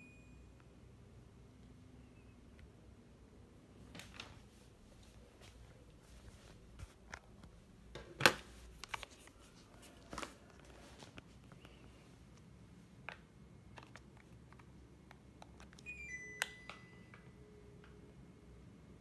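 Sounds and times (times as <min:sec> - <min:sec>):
air conditioner beeps: 0:00.0 - 0:02.8, 0:15.6 - 0:18.4.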